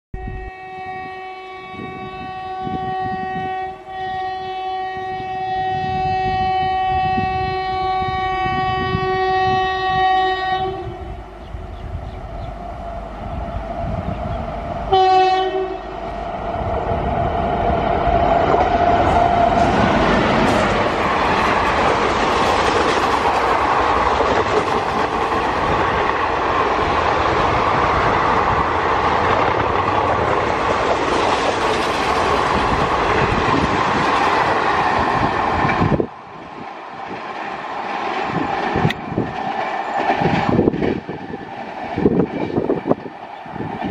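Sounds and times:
train horn blasts: 0.2s - 11.4s, 14.9s - 16.2s.

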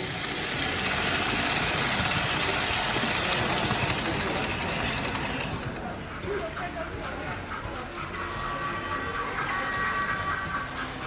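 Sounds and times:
model train running on track: 0.0s - 11.0s.

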